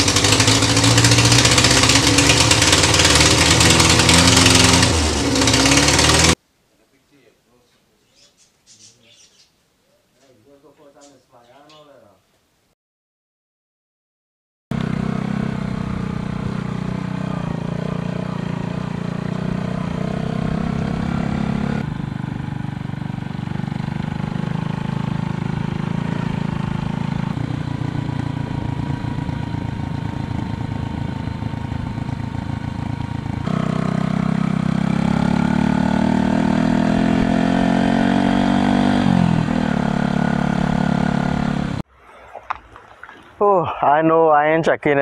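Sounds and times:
motorcycle engine running: 0:00.0 - 0:06.4, 0:14.7 - 0:41.8.

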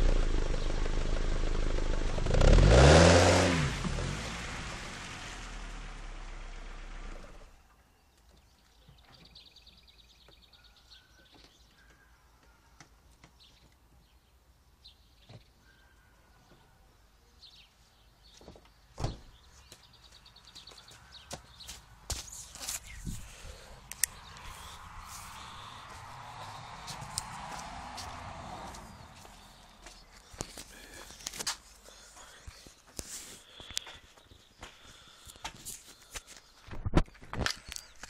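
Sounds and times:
vehicle engine: 0:00.0 - 0:07.6, 0:23.1 - 0:31.4
birds chirping and twittering: 0:07.6 - 0:38.0.

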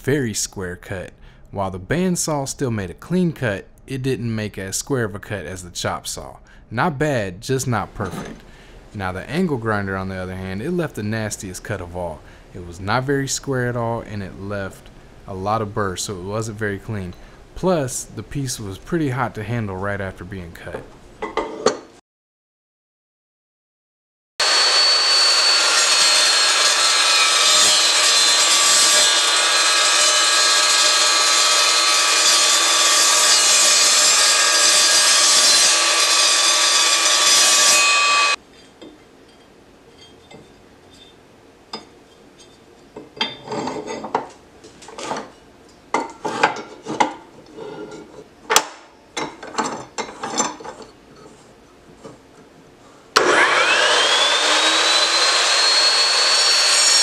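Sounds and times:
chop saw cutting metal: 0:24.4 - 0:38.4, 0:53.2 - 0:57.0.

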